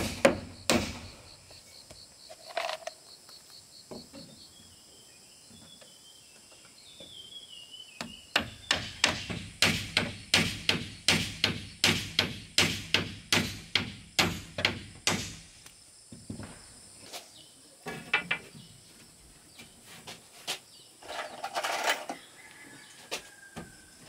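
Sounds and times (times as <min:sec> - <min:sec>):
hammer striking wood: 0:00.0 - 0:01.1, 0:08.0 - 0:15.4.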